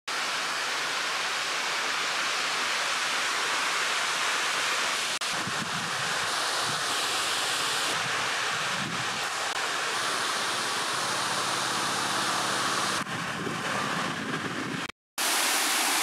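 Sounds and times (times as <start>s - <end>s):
steady rushing outdoor noise: 0.1s - 16.0s
wind buffeting on microphone: 5.3s - 6.8s, 7.9s - 9.3s, 12.9s - 14.9s.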